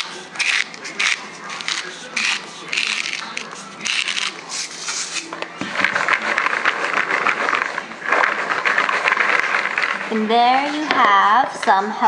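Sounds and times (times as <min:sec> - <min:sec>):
salt grinder grinding: 0:00.0 - 0:04.4, 0:06.0 - 0:10.8
popcorn tossed in plastic bowl: 0:00.0 - 0:11.6.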